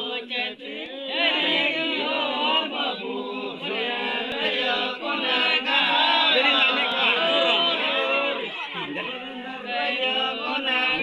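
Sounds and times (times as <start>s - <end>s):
men singing together: 0.0s - 11.0s.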